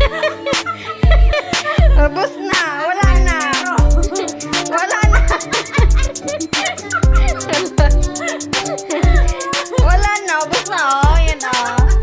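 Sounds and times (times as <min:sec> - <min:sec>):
music with heavy bass beat: 0:03.0 - 0:12.0.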